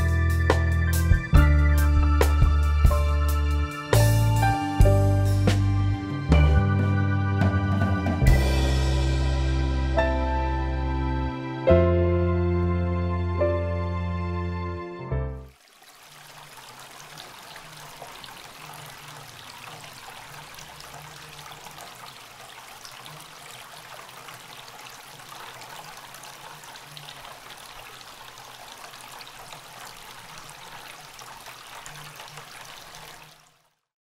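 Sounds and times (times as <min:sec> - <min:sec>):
water trickling over stones: 0:15.5 - 0:33.9.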